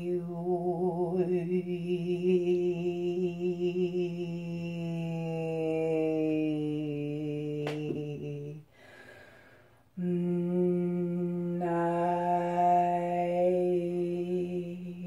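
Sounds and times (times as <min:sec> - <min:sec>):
woman breathing in: 0:08.7 - 0:09.9.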